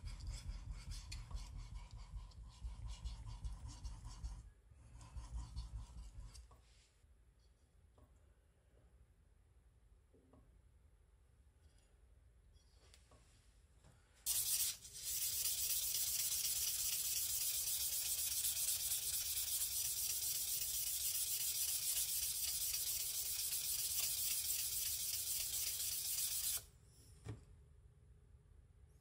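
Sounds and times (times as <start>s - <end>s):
sandpaper scratching on knife blade: 14.3s - 26.7s.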